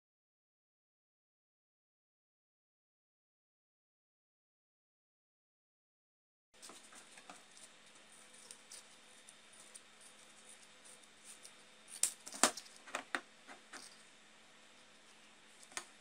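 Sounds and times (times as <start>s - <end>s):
faint steady hum: 6.6s - 16.0s.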